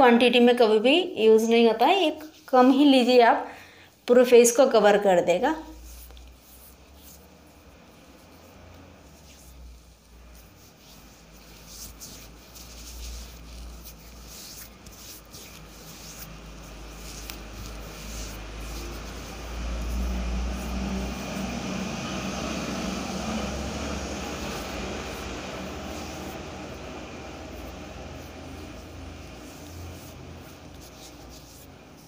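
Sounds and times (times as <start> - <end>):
low steady hum: 5.1 - 32.0
fingers rubbing skin: 5.7 - 32.0
broad rumbling noise: 15.6 - 32.0.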